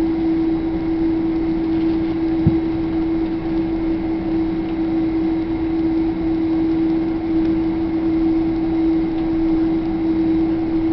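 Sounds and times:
aircraft cabin hum: 1.0 - 6.8.

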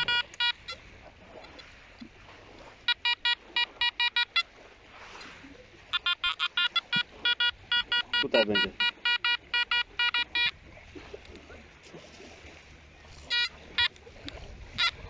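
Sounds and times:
metal detector short high beeps: 0.0 - 0.8, 2.9 - 4.5, 5.9 - 10.5, 13.3 - 14.0, 14.8 - 15.0.

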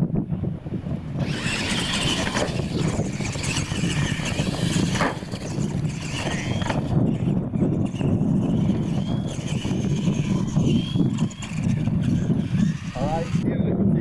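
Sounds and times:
electric motors whining: 0.9 - 13.5.

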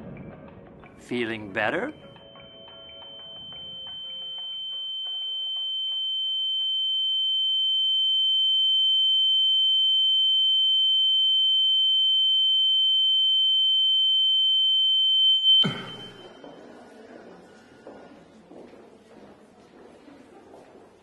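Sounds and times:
high-pitched electronic ringing tone: 2.0 - 16.6.

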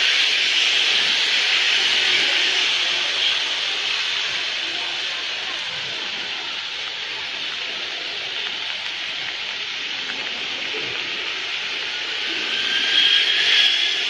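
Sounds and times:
rain falling on street: 0.0 - 14.0
thin high whine: 9.6 - 14.0.

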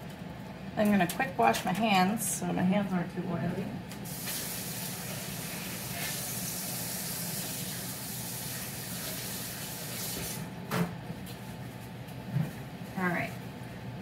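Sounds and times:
tap water running: 4.0 - 10.5.

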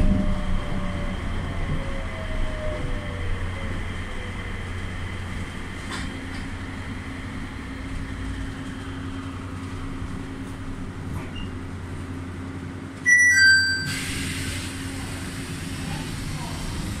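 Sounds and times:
train car running with low hum: 0.0 - 17.0
two-note descending door chime: 13.1 - 14.0.

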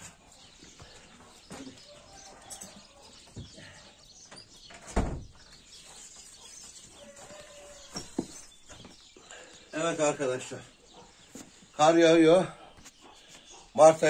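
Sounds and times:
wooden door banging shut: 4.8 - 5.4.

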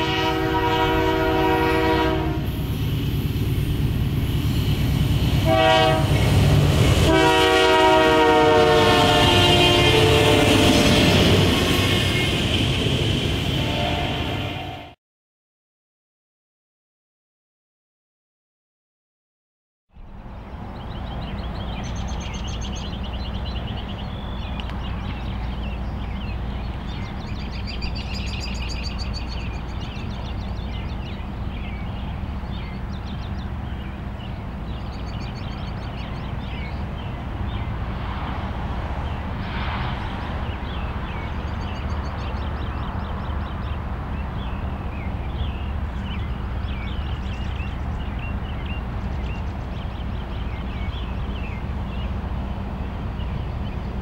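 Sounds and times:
rushing noise: 2.3 - 7.4, 36.8 - 42.4
birds chirping and singing: 20.0 - 37.8, 40.0 - 54.0.

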